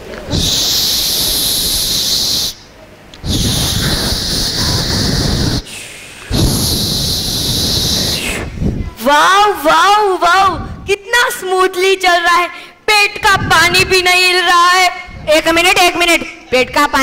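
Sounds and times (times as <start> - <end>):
boy blowing hiss into microphone: 0.2 - 8.9.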